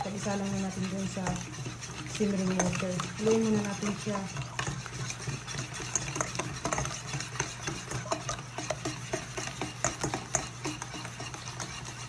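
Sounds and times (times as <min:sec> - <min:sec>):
steady low hum: 0:00.0 - 0:12.0
wire whisk clinking on metal bowl: 0:00.0 - 0:12.0.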